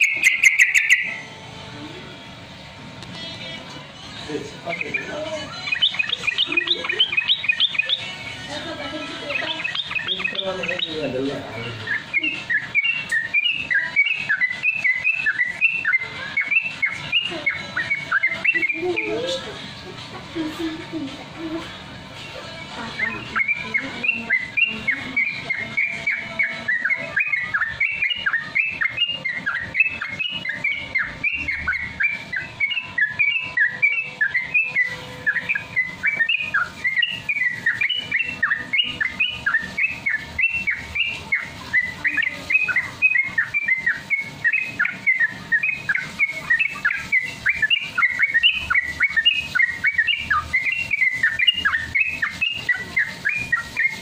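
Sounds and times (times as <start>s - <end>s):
bulbul chirping whistles: 0.0s - 1.2s, 11.8s - 19.2s, 23.4s - 54.0s.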